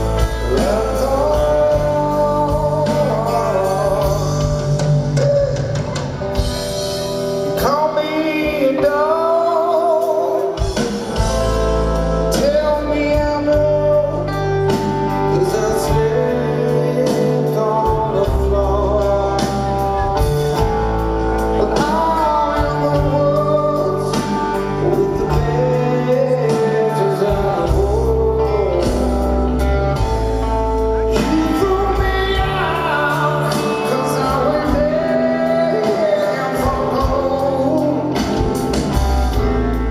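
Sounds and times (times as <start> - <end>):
live rock band playing: 0.0 - 39.9
man singing: 0.0 - 39.9.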